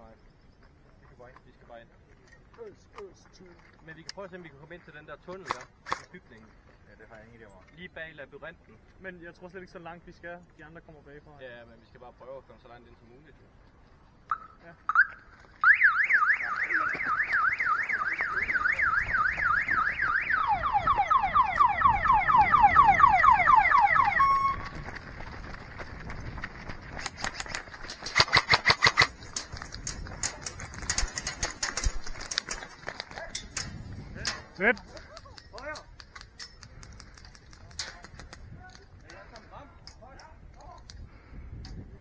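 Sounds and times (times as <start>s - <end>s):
electronic siren wailing: 14.3s - 24.7s
rapid sharp clicks: 26.9s - 33.7s.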